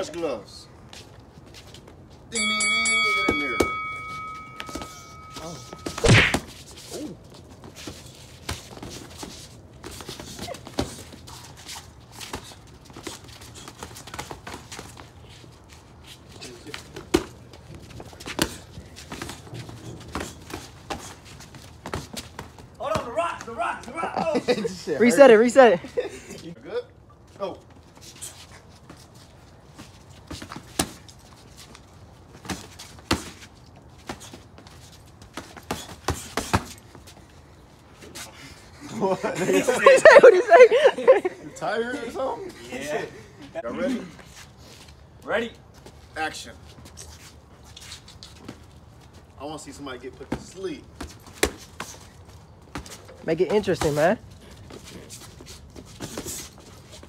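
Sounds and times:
feet shuffling: 0:00.8 - 0:26.5, 0:27.2 - 0:41.2, 0:44.0 - 0:49.4, 0:51.0 - 0:57.0
boxing gloves punching thuds: 0:03.2 - 0:06.6, 0:35.2 - 0:36.9, 0:50.3 - 0:52.0.

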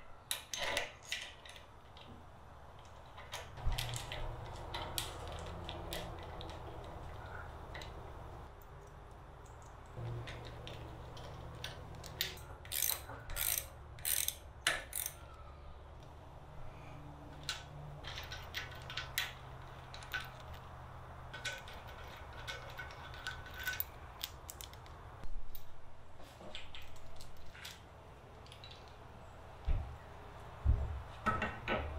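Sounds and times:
metal parts clicking and rattling: 0:00.3 - 0:02.1, 0:02.8 - 0:15.4, 0:17.3 - 0:25.7, 0:26.5 - 0:29.0.

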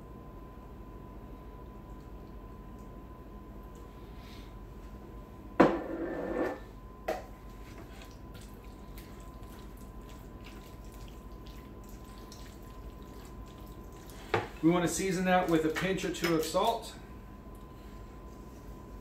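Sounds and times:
wet stirring with spatula: 0:07.3 - 0:16.9.

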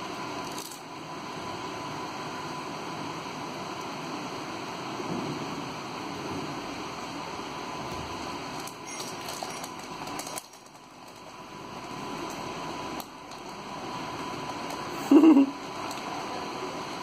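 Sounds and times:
snack packet crinkling: 0:08.6 - 0:11.4.

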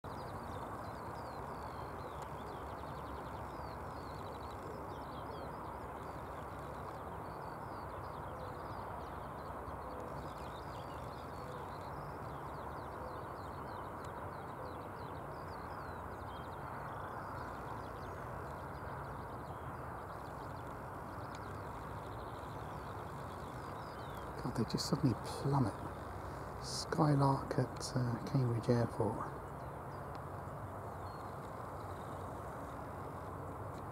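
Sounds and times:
skylark singing: 0:00.0 - 0:33.9
steady rushing noise: 0:15.2 - 0:33.9.

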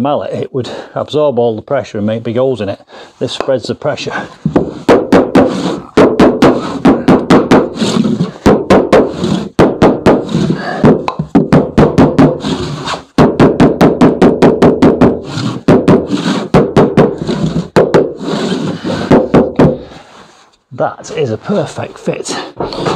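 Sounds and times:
mallet knocking on wooden block: 0:17.8 - 0:18.1.

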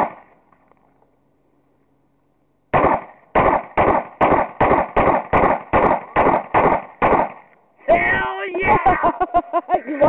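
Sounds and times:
pistol shots: 0:00.0 - 0:00.3, 0:02.7 - 0:07.5.

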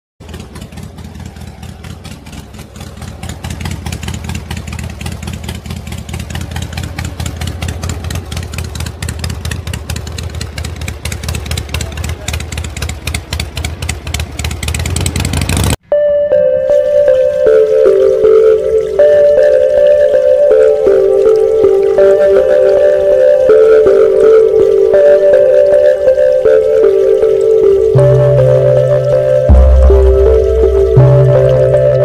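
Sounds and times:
tractor engine chugging: 0:00.2 - 0:15.8
music: 0:15.8 - 0:32.0.

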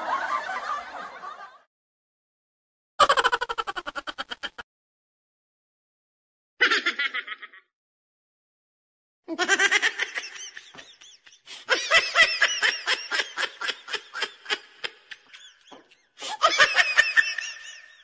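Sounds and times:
high-pitched laughter: 0:03.0 - 0:04.6, 0:06.6 - 0:07.7, 0:09.3 - 0:18.0.

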